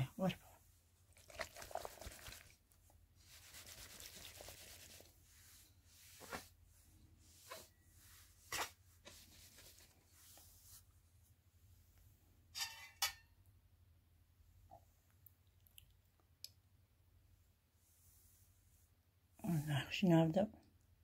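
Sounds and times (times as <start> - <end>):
soft rustle: 1.4 - 12.2, 17.7 - 19.9.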